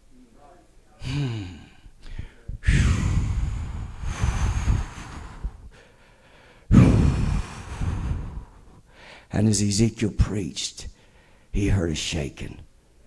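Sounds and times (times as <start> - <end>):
man exhaling into microphone: 1.0 - 5.8, 6.4 - 9.2.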